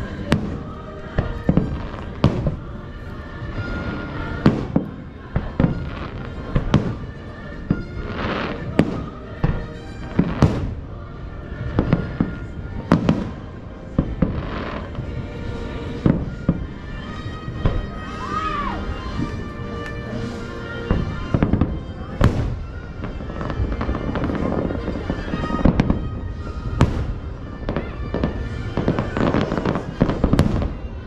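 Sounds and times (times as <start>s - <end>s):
music playing: 0.0s - 31.0s
firework shells booming: 20.9s - 30.9s.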